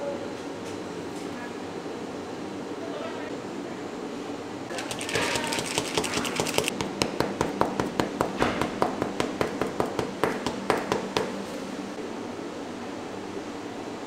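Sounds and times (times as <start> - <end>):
paper tubes tapping on counter: 4.7 - 11.3.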